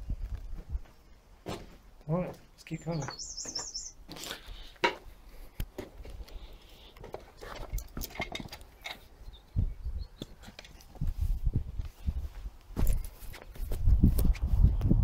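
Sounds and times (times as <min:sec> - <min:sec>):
footsteps on rough ground: 0:00.0 - 0:15.0
bird chirping: 0:02.6 - 0:04.0, 0:09.0 - 0:10.4.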